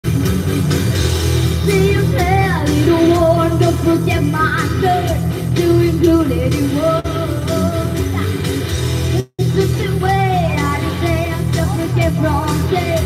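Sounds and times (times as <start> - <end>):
girl singing into a microphone: 1.6 - 8.4, 9.5 - 13.0.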